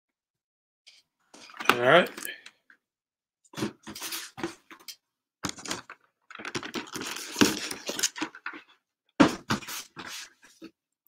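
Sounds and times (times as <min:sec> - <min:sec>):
boxes rustling and scraping: 0:03.6 - 0:04.9, 0:05.5 - 0:10.8.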